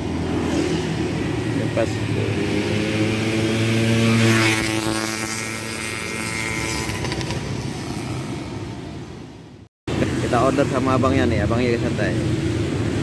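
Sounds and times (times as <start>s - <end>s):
motorcycle passing by: 0.0s - 8.9s.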